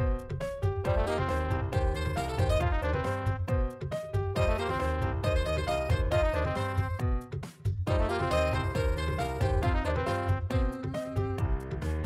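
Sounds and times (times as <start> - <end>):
regular drum beat: 0.0 - 12.0
melody in held notes: 4.4 - 7.2, 7.9 - 11.3.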